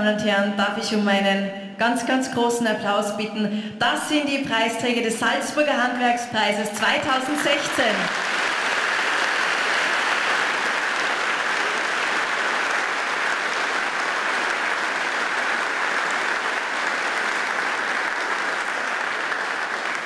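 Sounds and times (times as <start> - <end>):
audience applauding: 7.2 - 20.0.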